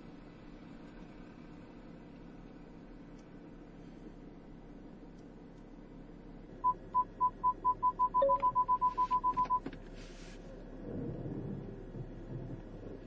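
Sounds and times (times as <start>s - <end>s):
click: 5.1s - 5.7s
parking sensor beeping: 6.6s - 9.7s.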